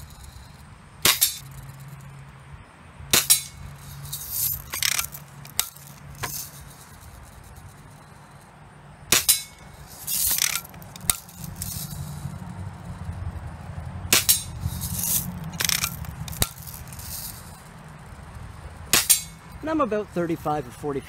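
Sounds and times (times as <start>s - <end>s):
rattly hissy noises: 0.0s - 2.2s, 3.2s - 21.0s
bb gun shots cracking: 9.1s - 9.6s, 14.1s - 14.5s, 18.9s - 19.4s.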